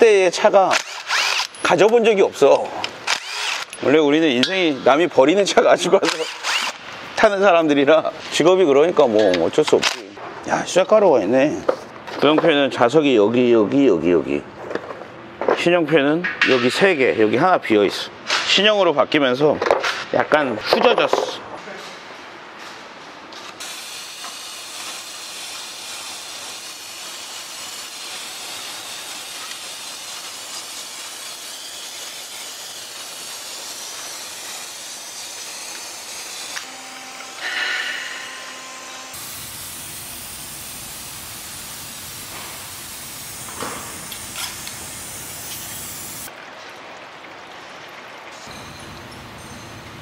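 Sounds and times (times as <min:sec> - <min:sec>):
aerosol spray hissing: 0:23.6 - 0:36.6, 0:39.2 - 0:46.3.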